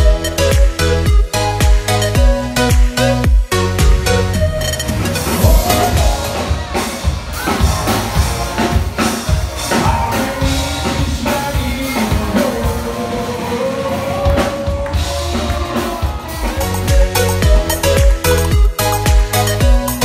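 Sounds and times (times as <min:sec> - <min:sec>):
drums: 0:00.0 - 0:20.0
man singing: 0:09.6 - 0:17.7.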